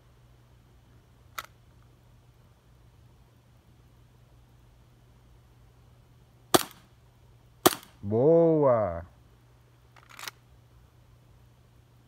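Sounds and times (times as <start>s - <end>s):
airsoft pistol shots: 6.5s - 6.9s, 7.6s - 8.0s.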